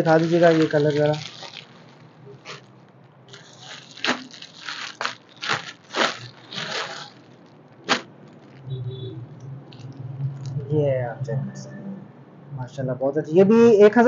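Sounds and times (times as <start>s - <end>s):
plastic bag crinkling: 0.0s - 8.8s, 9.6s - 10.6s.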